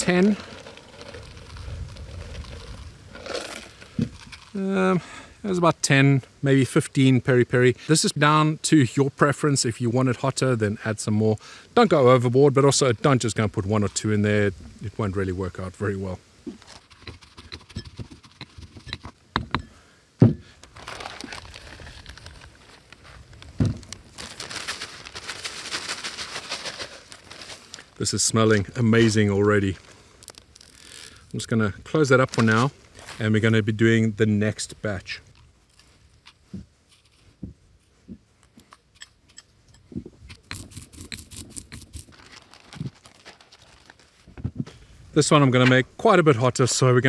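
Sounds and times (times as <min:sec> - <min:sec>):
plastic bag crinkling: 0:00.0 - 0:04.6, 0:20.6 - 0:28.0, 0:29.8 - 0:31.4, 0:40.6 - 0:44.3
bowls clicking and rustling: 0:38.4 - 0:44.0.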